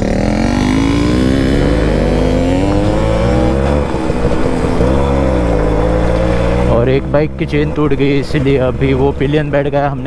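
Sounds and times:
two-stroke motorcycle engine revving: 0.0 - 10.0.

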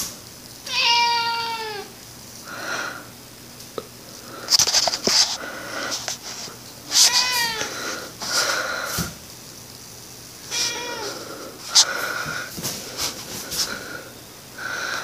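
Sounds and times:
cat meowing: 0.6 - 1.9, 6.9 - 7.7, 10.5 - 11.4.

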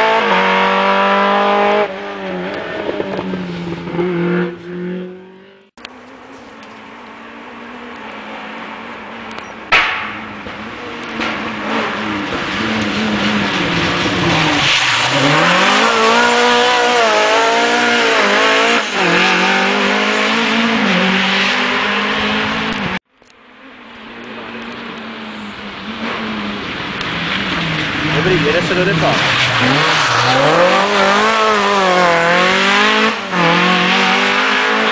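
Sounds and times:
rally car engine revving: 0.0 - 23.0, 23.6 - 34.9
sharp bang: 9.7 - 10.5.

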